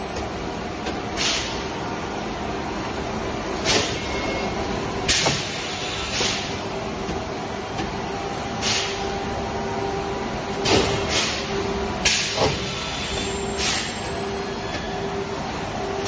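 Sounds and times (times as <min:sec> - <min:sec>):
pneumatic air hisses: 0:01.2 - 0:01.6, 0:08.6 - 0:09.0, 0:12.1 - 0:14.0.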